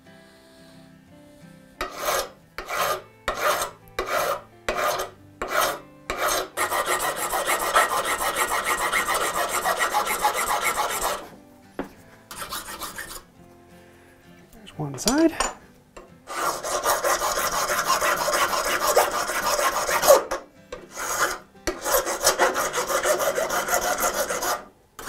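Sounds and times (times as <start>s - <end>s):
hand file rasping on workpiece: 1.8s - 11.3s, 12.3s - 13.3s, 16.3s - 24.7s.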